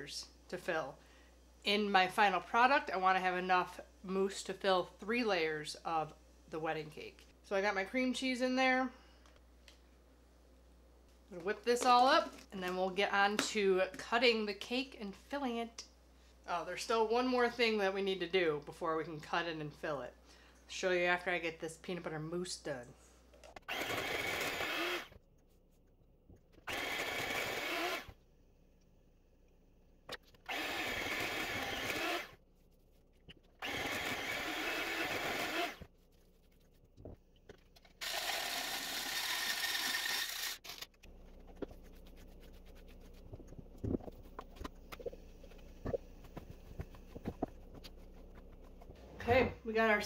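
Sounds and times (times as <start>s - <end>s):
electric hand mixer whipping: 23.7s - 25.1s, 26.7s - 28.1s, 30.5s - 32.3s, 33.6s - 35.8s, 38.0s - 40.6s.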